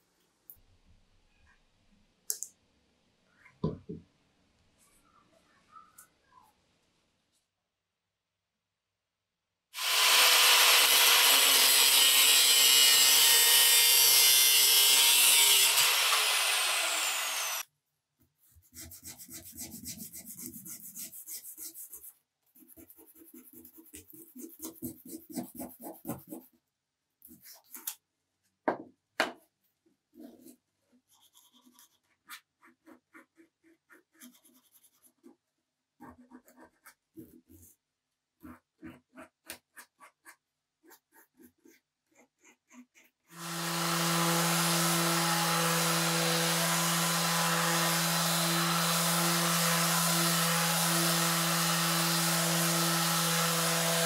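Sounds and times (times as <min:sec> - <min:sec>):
power tool running: 0:09.8 - 0:17.6, 0:43.4 - 0:54.0
sandpaper rubbing on wood: 0:18.6 - 0:26.5.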